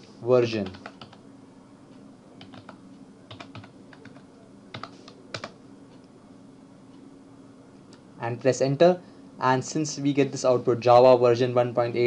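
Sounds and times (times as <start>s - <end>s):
faint steady hum: 0.0s - 12.0s
keyboard typing: 0.6s - 1.2s, 2.4s - 5.6s.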